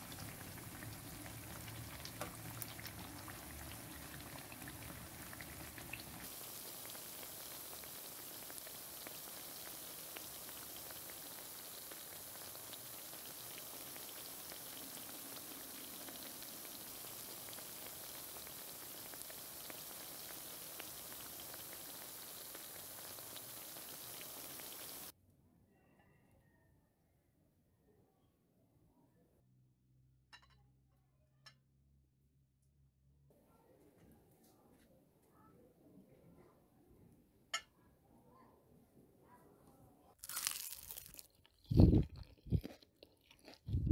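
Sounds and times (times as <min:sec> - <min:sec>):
food deep-frying in hot oil: 0:00.0 - 0:25.1, 0:40.2 - 0:43.9.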